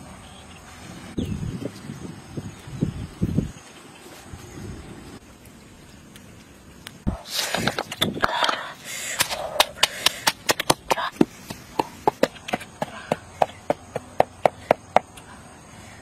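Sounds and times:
pestle pounding in mortar: 9.2s - 15.0s.

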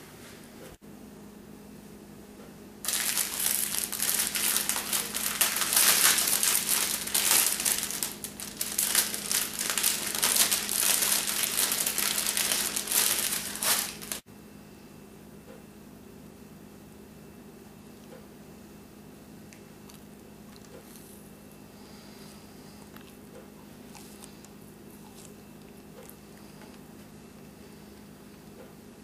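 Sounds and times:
plastic bag crinkling: 2.9s - 14.2s.

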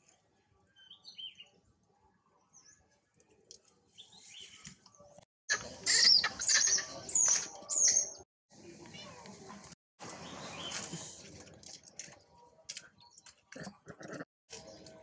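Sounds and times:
macaques screaming: 5.5s - 6.9s.

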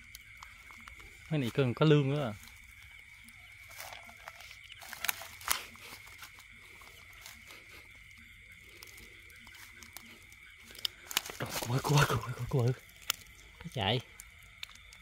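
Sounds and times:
insects droning: 0.0s - 15.0s
sharp clicks: 12.9s - 13.4s.

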